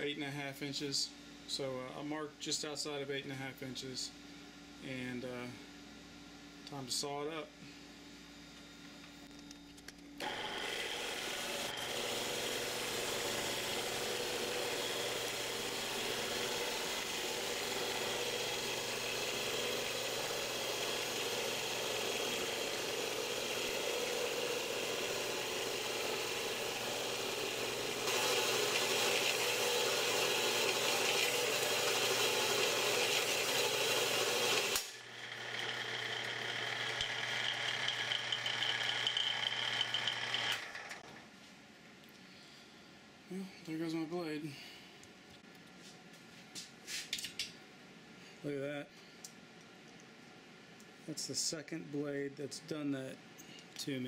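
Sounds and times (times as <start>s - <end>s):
band saw cutting steel: 10.2s - 41.0s.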